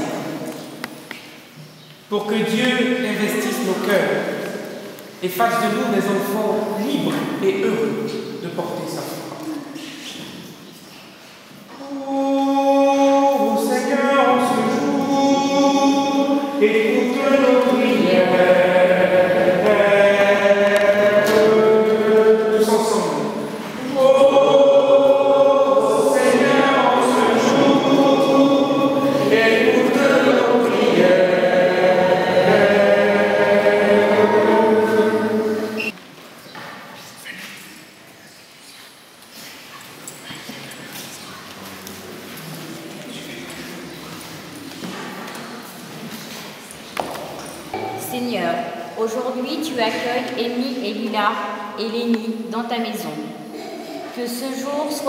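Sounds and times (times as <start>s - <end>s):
group of voices singing: 11.7s - 36.0s.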